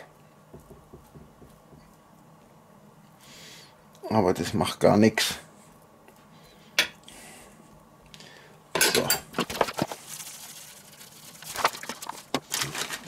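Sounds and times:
paper bag rustling: 9.4s - 13.0s.

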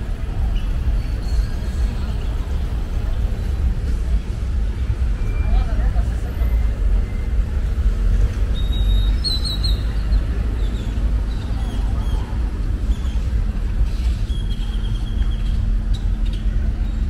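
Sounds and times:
traffic engines rumbling: 0.0s - 17.0s.

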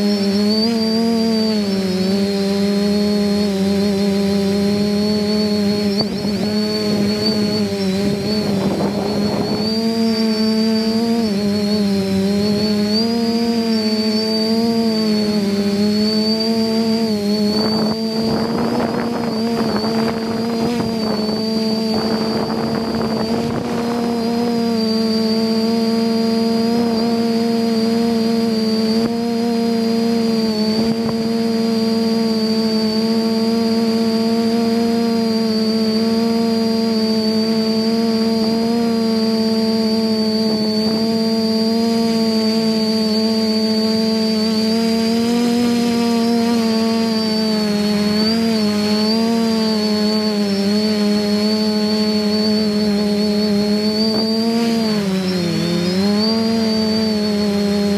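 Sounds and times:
drone motors humming: 0.0s - 57.9s
high whine: 0.0s - 57.9s
wind buffeting microphone: 4.6s - 11.6s, 17.1s - 25.1s.

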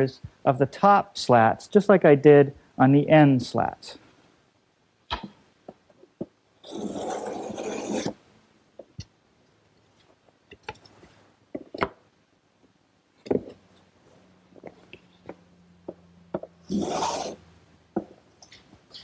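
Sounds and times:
hand tool scraping wood: 6.6s - 8.2s, 16.7s - 17.4s.

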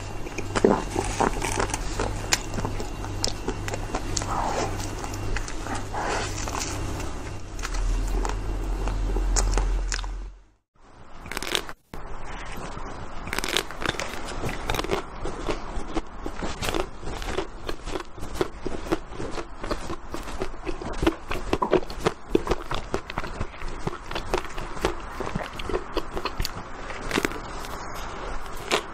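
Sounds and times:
crunching frozen ice cream: 0.0s - 10.3s, 11.2s - 11.8s, 13.2s - 28.9s
low hum: 0.0s - 28.9s.

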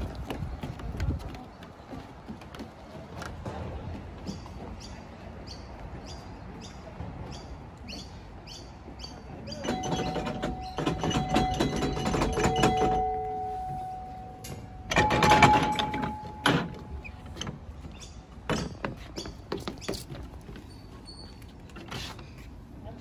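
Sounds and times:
footsteps on wooden deck: 0.0s - 9.0s, 15.8s - 22.8s
ringing metal tone: 9.6s - 17.2s.

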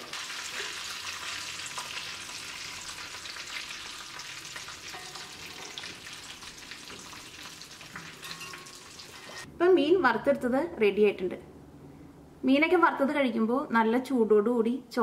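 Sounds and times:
hot oil sizzling and crackling: 0.0s - 9.5s.

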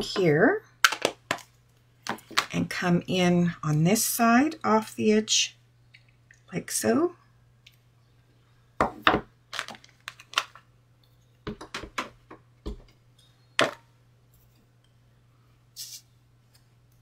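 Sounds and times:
brushing hiss: 15.8s - 16.1s.

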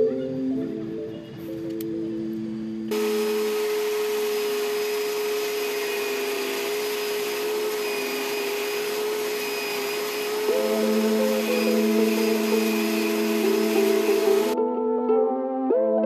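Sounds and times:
small motor whirring: 2.9s - 14.6s.

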